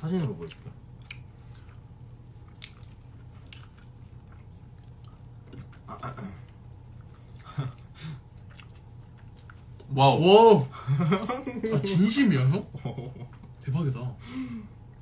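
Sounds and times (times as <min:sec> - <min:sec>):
person chewing food: 0:00.1 - 0:09.9, 0:14.7 - 0:15.0.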